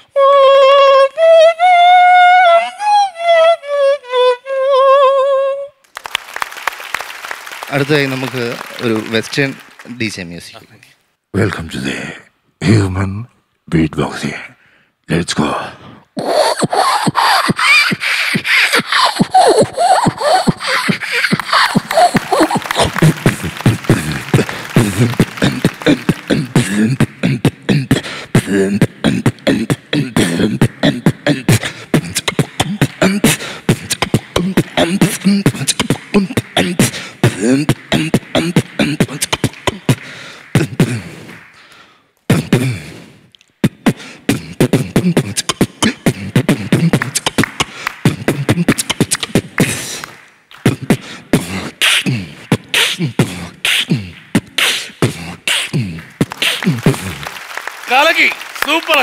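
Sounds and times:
person beatboxing into microphone: 15.2s - 57.3s.

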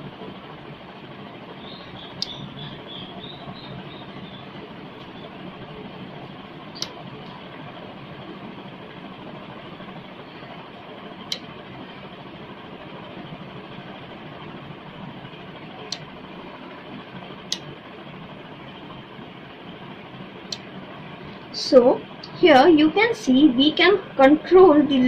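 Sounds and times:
steady background noise: 0.0s - 25.0s.

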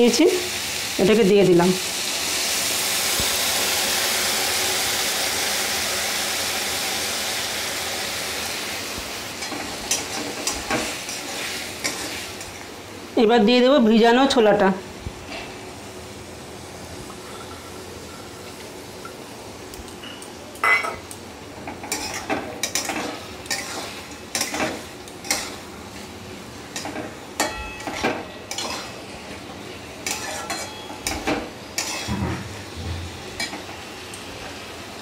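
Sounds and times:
metal spatula scraping metal pan: 28.5s - 29.0s, 30.0s - 30.8s, 31.8s - 32.5s.

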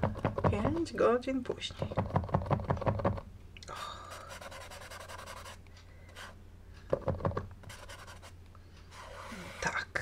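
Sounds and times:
marker nib tapping: 1.8s - 3.2s, 6.9s - 8.3s
marker nib scratching paper: 4.3s - 5.6s, 7.6s - 8.3s, 8.9s - 9.8s.

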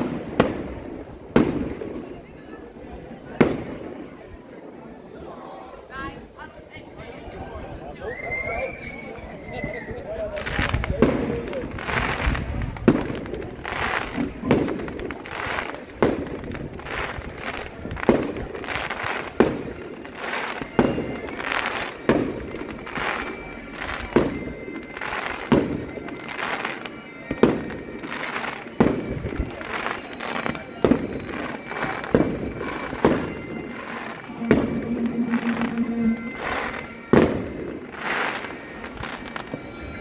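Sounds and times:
fireworks shells bursting: 19.1s - 39.7s.

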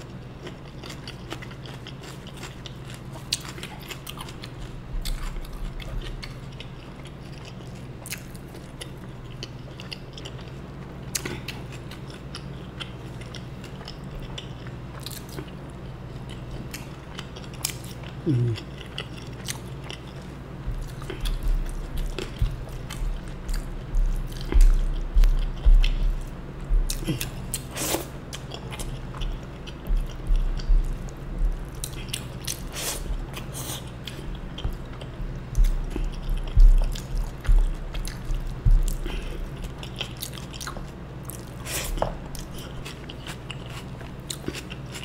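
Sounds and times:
low thumps: 20.6s - 27.0s, 29.1s - 31.8s, 34.3s - 39.7s.

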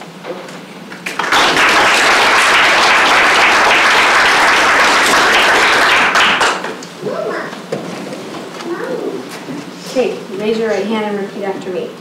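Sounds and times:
audience clapping: 1.0s - 6.8s.

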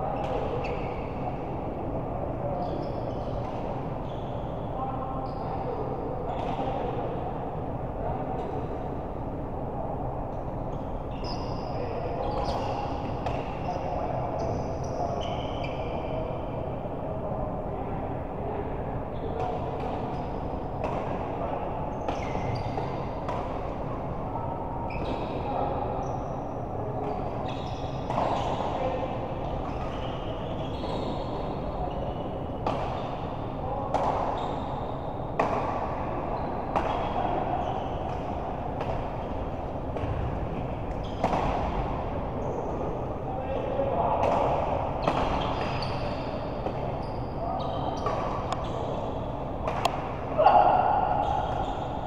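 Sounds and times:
shoes squeaking on court floor: 0.2s - 1.0s, 2.6s - 3.4s, 10.7s - 13.8s, 14.4s - 15.9s, 22.0s - 23.0s, 24.9s - 25.4s, 27.1s - 28.8s, 29.7s - 33.2s, 34.0s - 35.0s, 41.0s - 41.6s, 42.4s - 42.7s, 45.0s - 49.1s.

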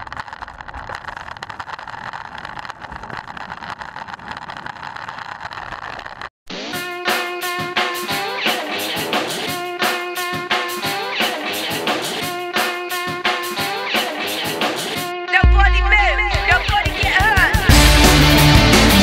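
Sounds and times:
drum kit beat: 6.8s - 19.0s
heavy bass: 15.4s - 19.0s
rock guitar riff: 17.7s - 19.0s.

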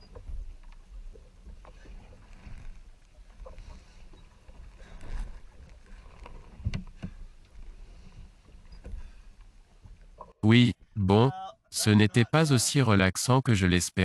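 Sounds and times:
water splashing against hull: 0.0s - 11.0s.

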